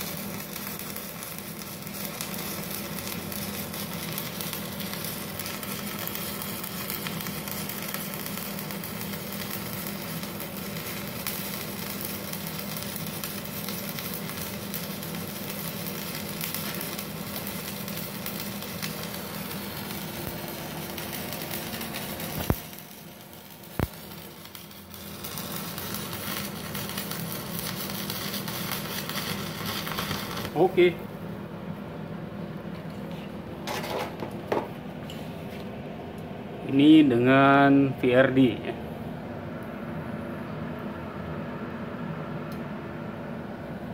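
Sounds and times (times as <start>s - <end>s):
sharp snaps of welding rod: 0.0s - 30.7s
welding arc crackling and sizzling: 0.0s - 31.0s.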